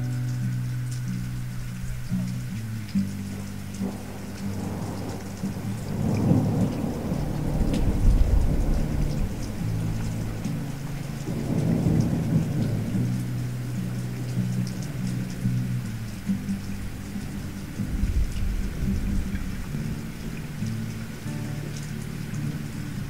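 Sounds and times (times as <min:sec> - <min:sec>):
low background music: 0:00.0 - 0:23.0
rain patter: 0:00.0 - 0:23.0
thunder rumbles: 0:03.3 - 0:20.6.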